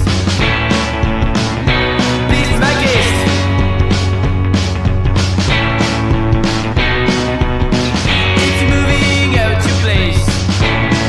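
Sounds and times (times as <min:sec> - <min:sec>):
distorted electric guitar: 0:00.0 - 0:11.0
steady drum beat: 0:00.0 - 0:11.0.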